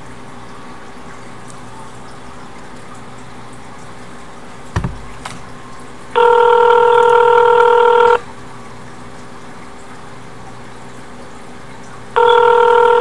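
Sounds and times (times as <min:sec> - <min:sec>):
telephone ringback tone: 0:06.2 - 0:08.2, 0:12.2 - 0:13.0.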